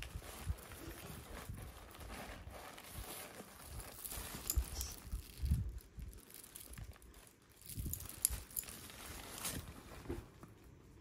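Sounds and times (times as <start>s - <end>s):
light rustling of handbag: 0.0s - 10.7s
chain strap clicks and knocks: 3.9s - 5.5s, 7.6s - 9.0s.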